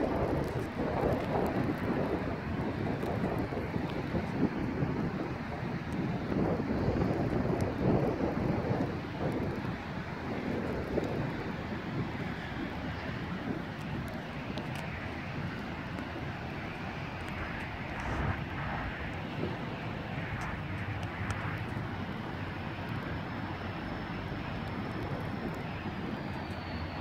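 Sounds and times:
diesel locomotive engine rumble: 1.4s - 27.0s.

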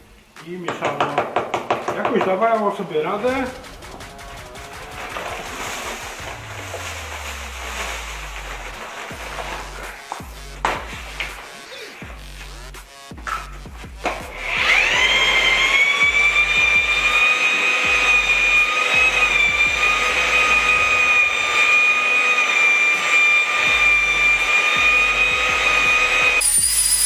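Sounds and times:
background music bass beat: 2.3s - 21.4s, 23.7s - 26.4s
paddle mixer motor whining: 3.6s - 10.4s, 14.3s - 27.0s.

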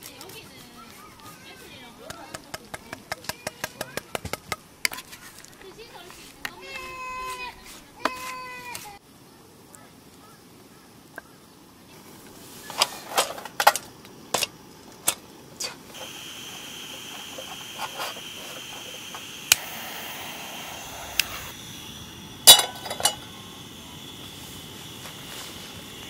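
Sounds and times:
gas burner hissing: 0.0s - 9.0s, 11.9s - 26.0s
griddle pan clattering: 12.7s - 15.2s, 22.4s - 23.3s
metal clinking and knocking: 22.5s - 23.2s.

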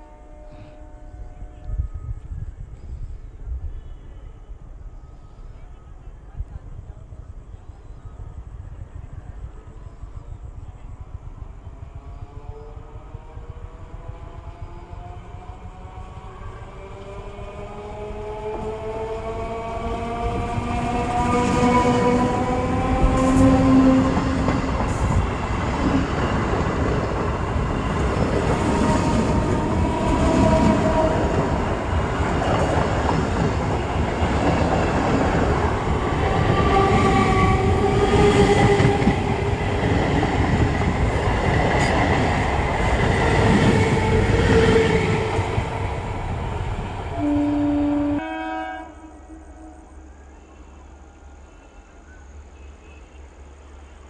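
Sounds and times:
multi-tone train whine: 0.0s - 54.0s
train wheels rushing and rattling: 13.2s - 47.3s.

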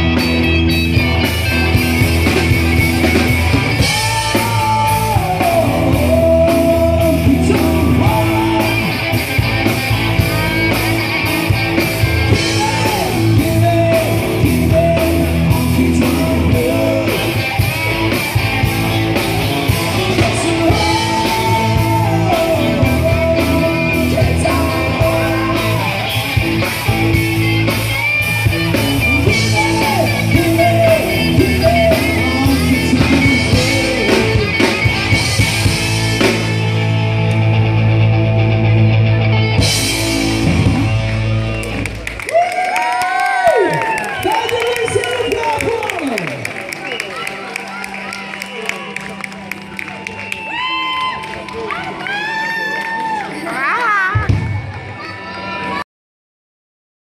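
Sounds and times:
drum kit beat: 0.0s - 42.1s
distorted electric guitars: 0.0s - 42.5s
bass guitar: 0.0s - 53.5s
man singing: 3.7s - 9.5s, 12.0s - 27.1s, 28.6s - 36.4s.

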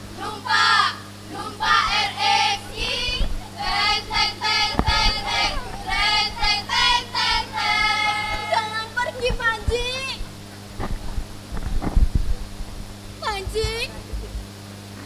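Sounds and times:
low electrical hum: 0.0s - 15.0s
child singing: 0.2s - 10.2s.

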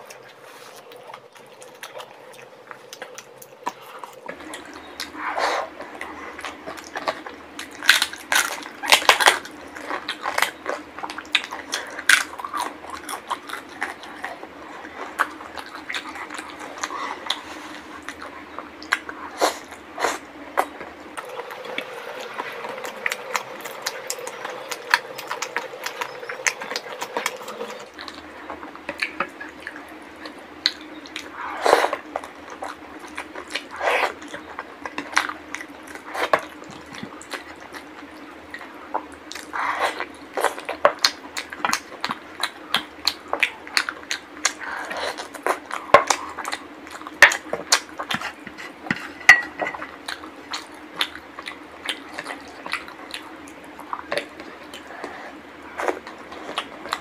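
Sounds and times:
food squelching by hand: 0.0s - 57.0s
wet chewing and mouth smacks: 0.0s - 57.0s.

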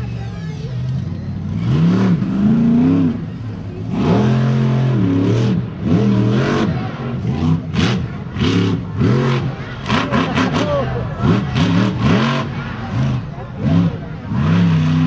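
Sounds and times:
monster truck engine revving: 0.8s - 15.0s.

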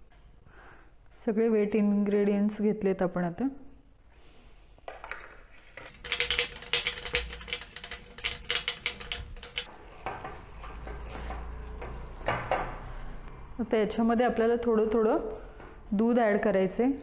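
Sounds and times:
whisk scraping: 5.7s - 9.7s
whisk clicking on glass bowl: 5.9s - 9.7s.

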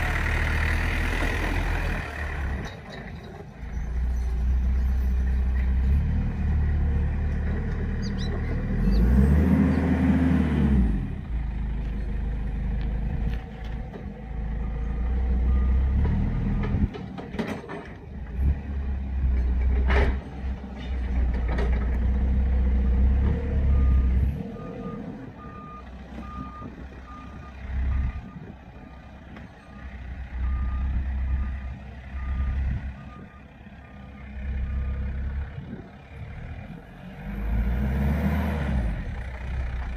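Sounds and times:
heavy vehicle engine revving: 0.0s - 2.7s, 3.9s - 17.0s, 30.2s - 39.9s
reversing alarm beeping: 23.6s - 35.3s.

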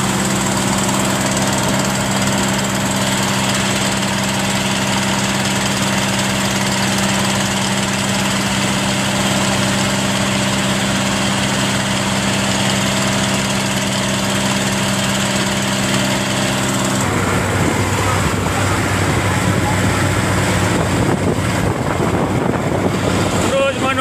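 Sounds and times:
boat engine running: 0.0s - 24.0s.

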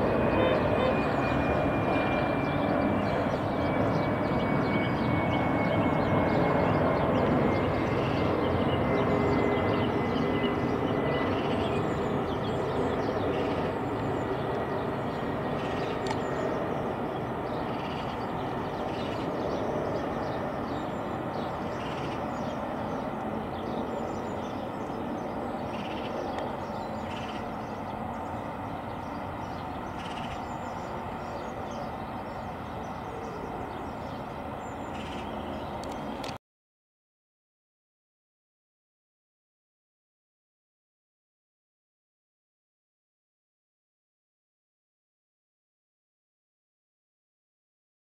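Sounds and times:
jet airliner rumble: 0.0s - 36.4s.

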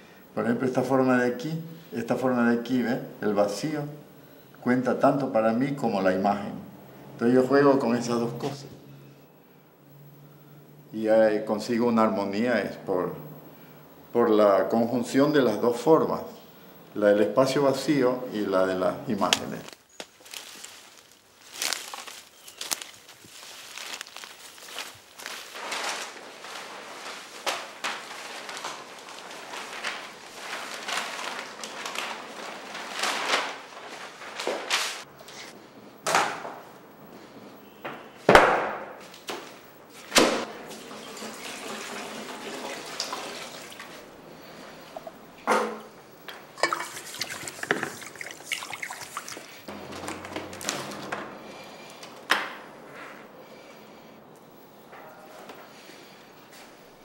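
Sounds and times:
leafy plants rustling: 18.4s - 35.4s, 43.3s - 45.0s, 46.5s - 57.0s
brush scraping paint in bucket: 46.6s - 50.9s.

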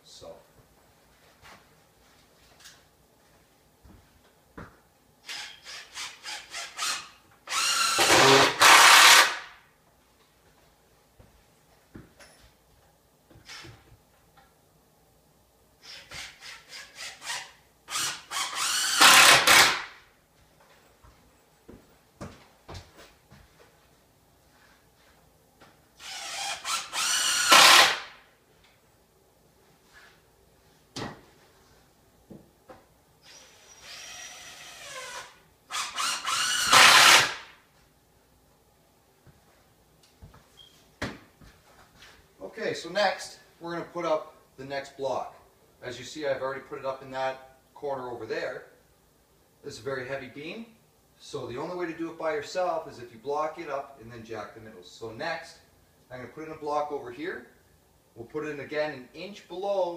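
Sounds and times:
power drill driving screws: 5.2s - 9.5s, 15.8s - 19.9s, 26.0s - 28.1s, 33.2s - 37.5s.

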